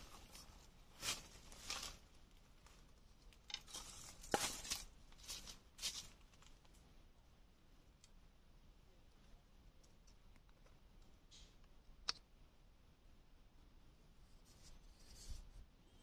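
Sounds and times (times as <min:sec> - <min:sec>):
rustling dry leaves: 0:00.0 - 0:06.6.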